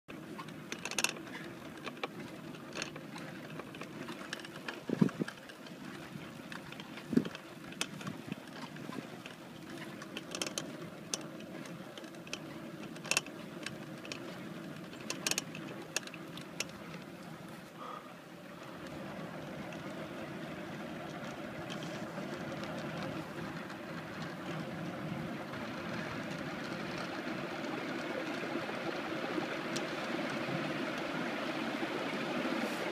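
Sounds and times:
wheelchair clicks and rattles: 0:00.4 - 0:17.1, 0:21.1 - 0:24.9.

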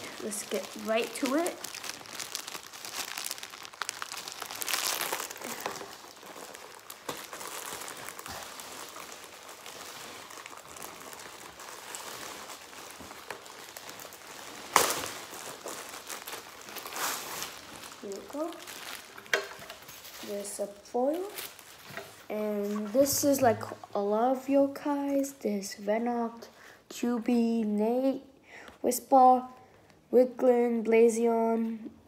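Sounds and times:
plastic wrapping crinkling: 0:00.0 - 0:25.4.

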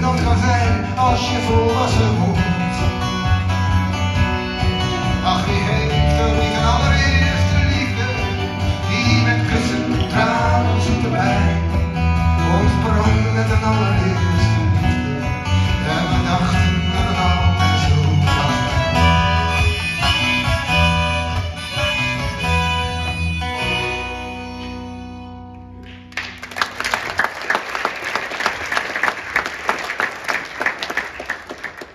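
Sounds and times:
acoustic guitars: 0:00.0 - 0:26.8
violin: 0:15.0 - 0:25.6.

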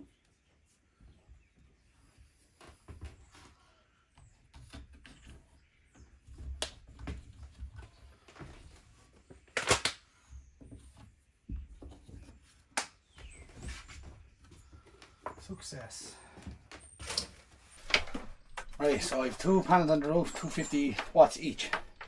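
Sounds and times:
plastic clatter: 0:17.0 - 0:22.0.

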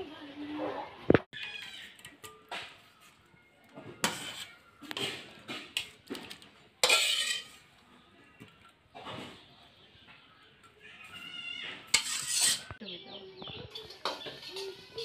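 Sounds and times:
vegetables scraped against blade: 0:04.0 - 0:05.8, 0:06.8 - 0:07.6, 0:11.8 - 0:12.8.

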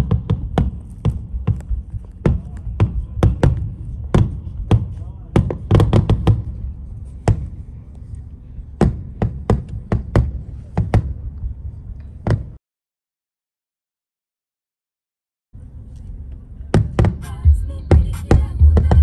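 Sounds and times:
fireworks bangs: 0:00.0 - 0:06.6
low rumble: 0:00.2 - 0:09.2.

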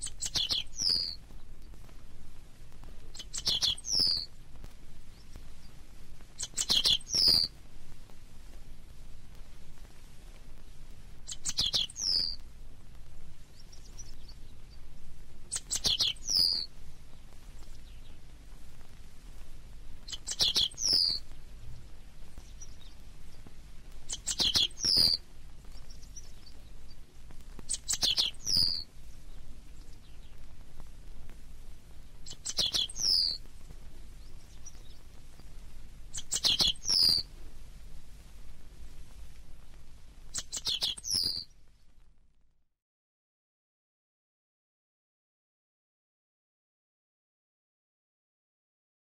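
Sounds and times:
bunting singing: 0:00.0 - 0:01.2, 0:03.1 - 0:04.3, 0:06.4 - 0:07.5, 0:11.2 - 0:12.4, 0:15.5 - 0:16.7, 0:20.0 - 0:21.4, 0:22.4 - 0:25.2, 0:27.7 - 0:30.4, 0:32.2 - 0:33.5, 0:36.1 - 0:37.3, 0:40.3 - 0:41.5.

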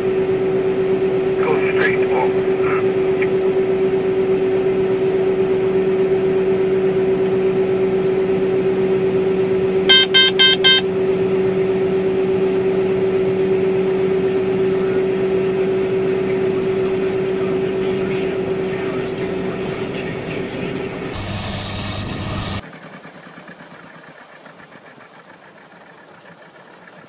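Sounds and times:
combine harvester engine drone: 0:00.0 - 0:27.0
electronic alarm beeps: 0:09.9 - 0:10.9.

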